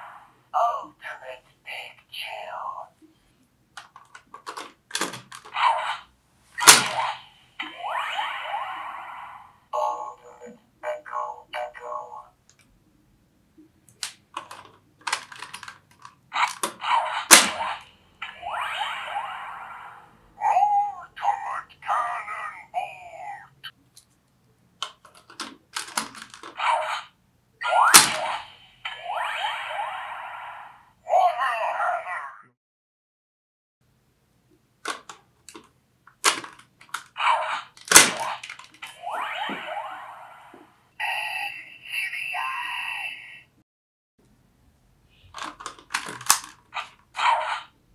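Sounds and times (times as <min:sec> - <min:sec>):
plastic toy clicking and rattling: 0:03.8 - 0:05.6, 0:13.9 - 0:17.4, 0:24.8 - 0:26.6, 0:34.8 - 0:38.8, 0:45.3 - 0:47.1
toy electronic sound effect: 0:05.5 - 0:11.4, 0:16.4 - 0:23.7, 0:26.5 - 0:32.5, 0:37.2 - 0:43.5
loud plastic snap: 0:06.6 - 0:07.1, 0:16.4 - 0:17.8, 0:27.9 - 0:28.4, 0:34.8 - 0:37.1, 0:37.7 - 0:38.9, 0:45.4 - 0:47.6.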